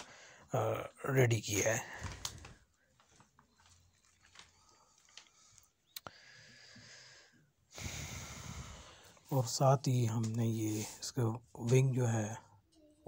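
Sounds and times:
paper sheets rustling: 2.0 - 5.5.

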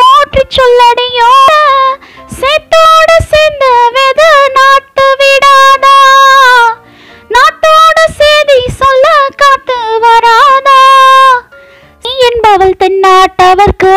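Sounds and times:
high voice singing: 0.0 - 11.4.

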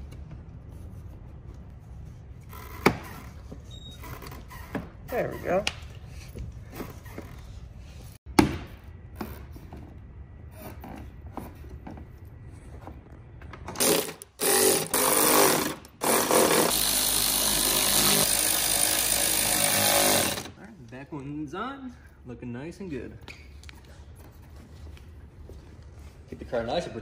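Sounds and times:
electric ratchet running: 13.8 - 20.5.

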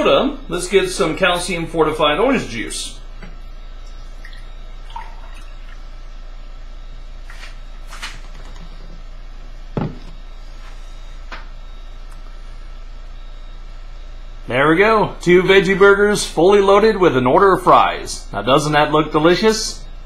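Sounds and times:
low electrical hum: 0.0 - 20.0
juice pouring into a glass: 4.0 - 5.9.

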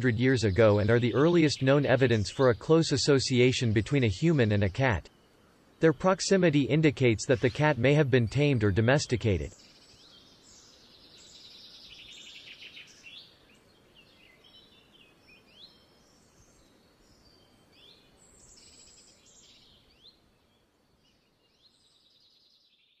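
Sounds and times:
soft background hiss: 0.0 - 22.7
birds chirping and trilling: 0.0 - 23.0.

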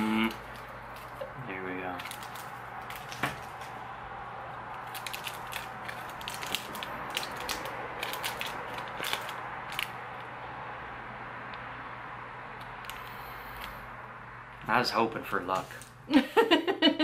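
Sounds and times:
lollipop wrapper crinkling: 1.9 - 3.3, 4.8 - 10.0.

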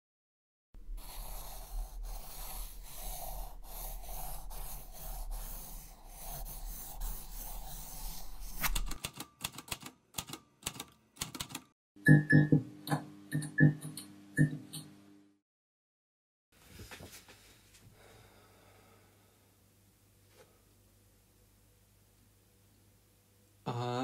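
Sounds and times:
pen scribbling hiss: 1.0 - 8.8.

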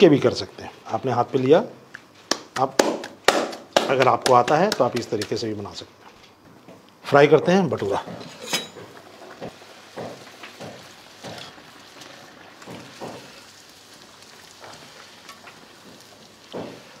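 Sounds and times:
bread sizzling in hot oil: 8.8 - 17.0.

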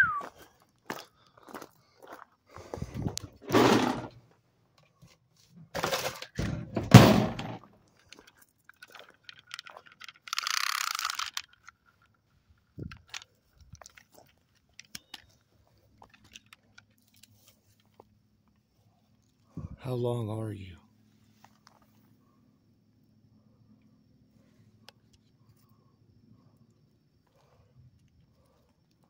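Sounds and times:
crunchy bursts: 9.7 - 11.7.

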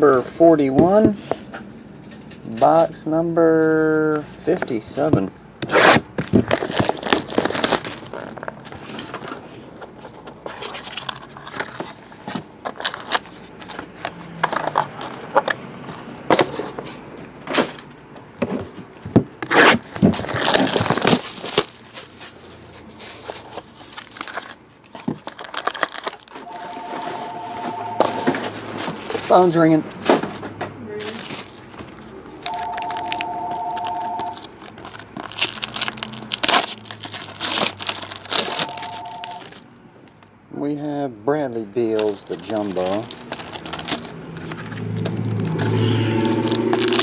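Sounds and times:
packaging crinkling and tearing: 5.6 - 15.6, 19.4 - 26.9, 31.0 - 40.2, 41.8 - 47.0
phone ringing two-tone trill: 26.4 - 28.5, 32.5 - 34.4, 38.5 - 39.5, 45.8 - 46.7.

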